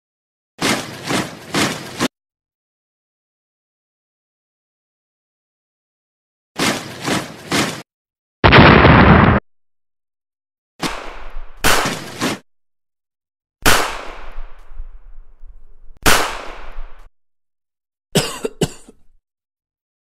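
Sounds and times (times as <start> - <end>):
gunfire: 8.4 - 9.4, 10.8 - 12.4, 13.6 - 14.7, 16.0 - 17.1
shellfire blasts: 8.4 - 9.4, 10.8 - 12.4, 13.6 - 14.8, 16.0 - 17.1
sharp shots with ringing tail: 10.8 - 12.2, 13.6 - 14.6, 16.0 - 17.0.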